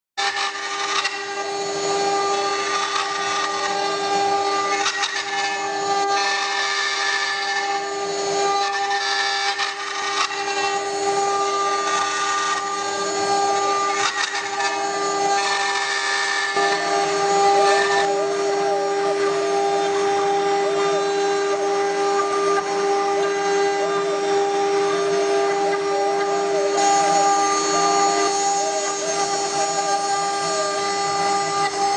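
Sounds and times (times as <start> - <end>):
bit cutting wood: 0.2 - 31.9
router spindle whining: 0.2 - 31.9.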